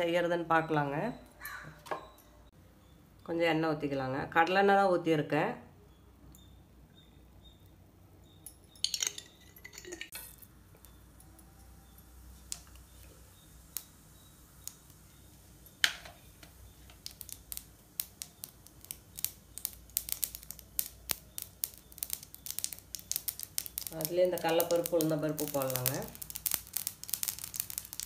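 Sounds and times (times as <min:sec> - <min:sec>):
hot oil ticking and popping: 0:08.4 - 0:28.0.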